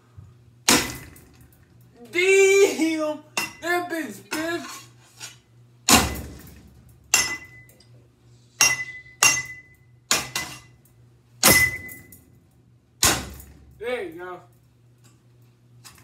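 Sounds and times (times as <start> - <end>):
bat hitting ceiling fan: 0.6 - 1.7, 5.9 - 7.7, 11.4 - 12.2, 13.0 - 14.0
short clear ring: 11.4 - 12.3.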